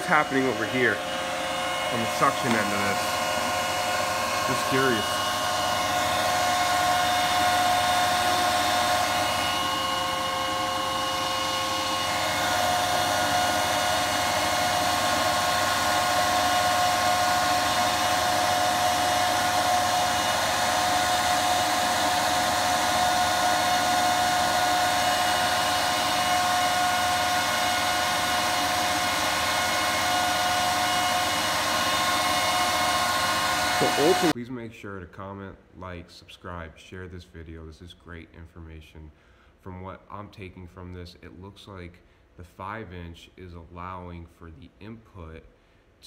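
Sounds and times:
cooling fans rushing air: 0.0s - 34.4s
whining fan blades: 0.0s - 34.4s.

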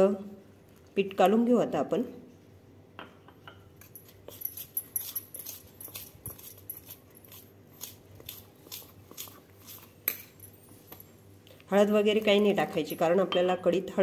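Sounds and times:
spoon scraping metal bowl: 3.8s - 10.3s.

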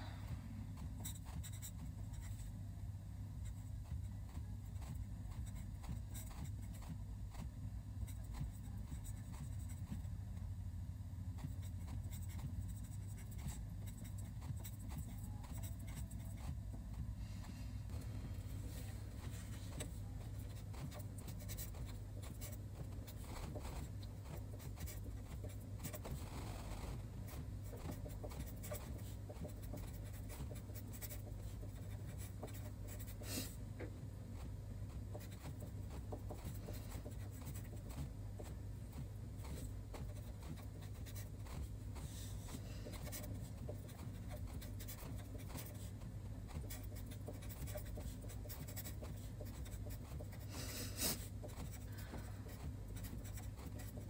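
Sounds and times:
steady low hum: 0.0s - 54.0s
pen scratching on paper: 0.7s - 2.6s, 3.4s - 10.1s, 11.3s - 17.1s, 18.8s - 33.5s, 34.3s - 54.0s.

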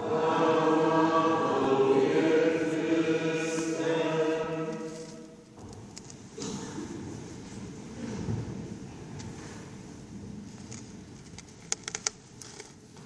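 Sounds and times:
sung chant with held notes: 0.0s - 5.4s.

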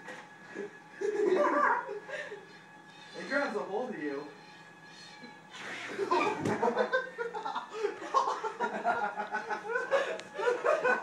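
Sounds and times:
men laughing: 0.6s - 2.5s, 5.9s - 11.0s.

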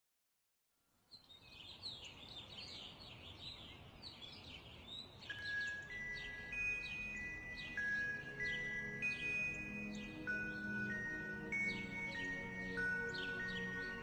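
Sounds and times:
small birds chirping: 1.0s - 14.0s
held musical tones: 5.3s - 14.0s.

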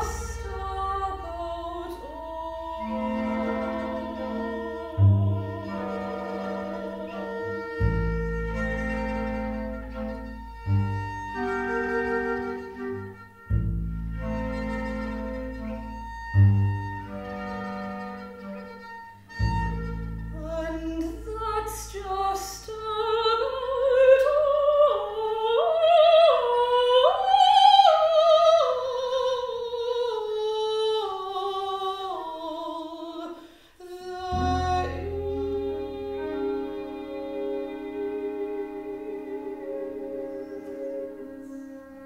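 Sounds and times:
soprano singing with vibrato: 0.0s - 9.6s, 20.4s - 42.0s
bowed contrabass low note: 0.0s - 24.4s, 34.2s - 42.0s.

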